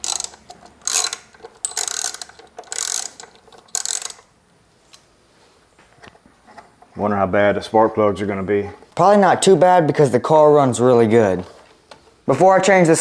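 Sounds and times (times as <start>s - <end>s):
hand ratchet clicking: 0.0s - 4.3s.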